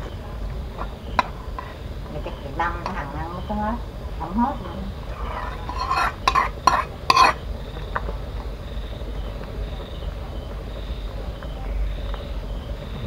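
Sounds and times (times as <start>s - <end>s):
ladle stirring in metal pot: 0.5s - 3.1s, 4.9s - 8.1s
metal clanks: 5.2s - 7.4s.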